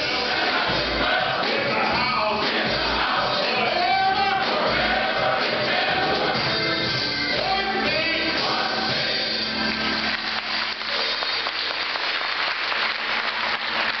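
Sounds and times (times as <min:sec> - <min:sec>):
men's choir singing: 0:00.0 - 0:10.2
audience applause: 0:09.4 - 0:14.0.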